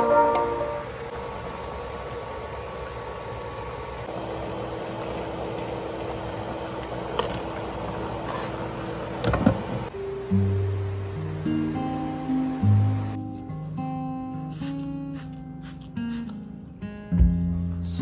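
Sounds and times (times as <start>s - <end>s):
low hum: 9.8s - 13.4s.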